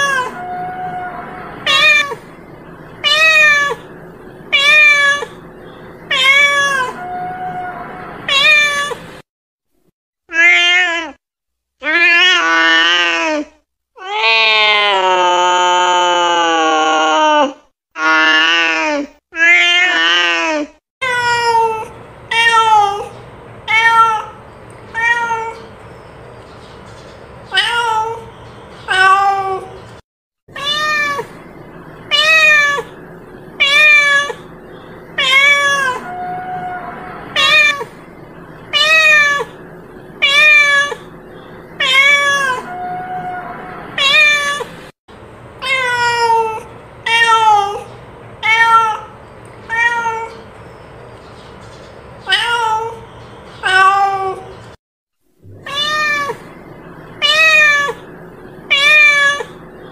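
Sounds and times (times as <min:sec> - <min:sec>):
cat meowing: 0:00.0 - 0:02.3, 0:03.0 - 0:03.9, 0:04.5 - 0:05.4, 0:06.1 - 0:09.2, 0:10.3 - 0:11.2, 0:23.7 - 0:25.7, 0:27.5 - 0:28.3, 0:28.9 - 0:29.8, 0:30.5 - 0:31.4, 0:32.1 - 0:33.0, 0:33.6 - 0:34.5, 0:35.2 - 0:38.0, 0:38.7 - 0:39.6, 0:40.2 - 0:41.1, 0:41.8 - 0:44.8, 0:45.6 - 0:50.4, 0:52.2 - 0:54.5, 0:55.5 - 0:58.1, 0:58.7 - 0:59.6
faint steady hum: 0:00.0 - 0:09.2, 0:30.6 - 0:51.5, 0:55.4 - 0:59.9.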